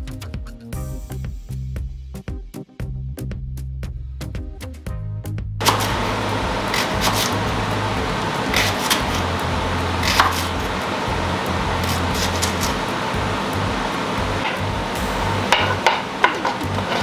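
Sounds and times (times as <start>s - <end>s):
knife chopping on wooden board: 5.6s - 6.0s, 6.7s - 7.4s, 8.5s - 9.3s, 10.0s - 10.7s, 11.8s - 12.8s
steady hiss: 5.6s - 17.0s.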